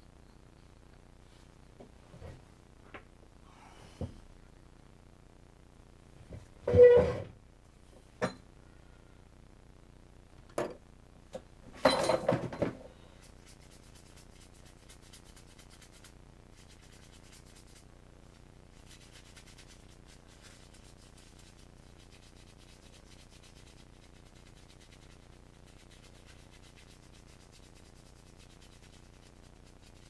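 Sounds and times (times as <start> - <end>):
faint steady hiss: 0.0 - 30.0
knocking and rattling: 11.8 - 12.8.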